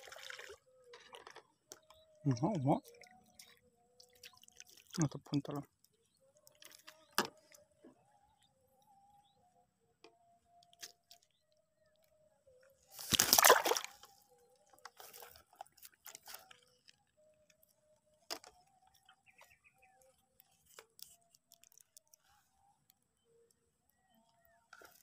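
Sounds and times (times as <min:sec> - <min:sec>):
water splashing in a bucket: 0:00.0 - 0:01.4, 0:02.3 - 0:05.7, 0:13.0 - 0:14.1.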